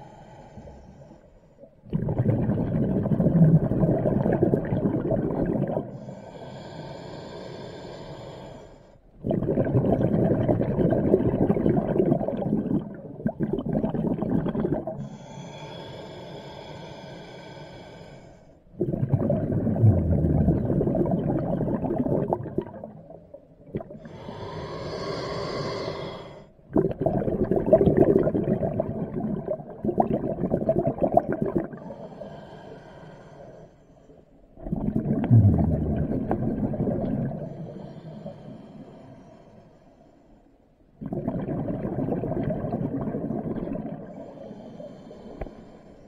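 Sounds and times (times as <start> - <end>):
regulator hissing inhale: 0.0 - 1.6, 5.9 - 9.0, 15.0 - 18.6, 24.1 - 26.5, 44.1 - 46.0
exhaled bubbles rushing: 1.8 - 6.0, 9.2 - 15.0, 18.8 - 24.1, 26.7 - 31.9, 34.6 - 37.6, 41.0 - 44.3.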